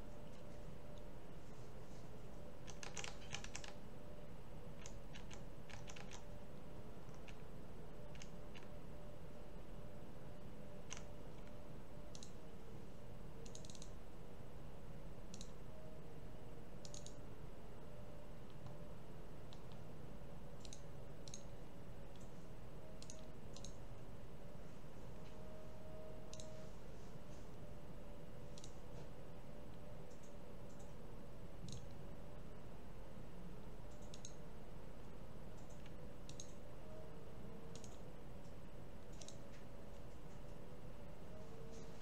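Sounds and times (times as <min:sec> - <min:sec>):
low background hum: 0:00.0 - 0:42.0
computer mouse clicking: 0:02.6 - 0:03.8, 0:04.8 - 0:06.4, 0:07.0 - 0:08.8, 0:10.8 - 0:12.4, 0:13.4 - 0:14.0, 0:15.3 - 0:15.6, 0:16.8 - 0:17.3, 0:19.5 - 0:19.9, 0:20.6 - 0:22.4, 0:23.0 - 0:23.8, 0:26.2 - 0:26.6, 0:28.5 - 0:28.8, 0:29.7 - 0:31.0, 0:31.6 - 0:32.0, 0:33.9 - 0:34.4, 0:35.6 - 0:36.6, 0:37.7 - 0:40.6.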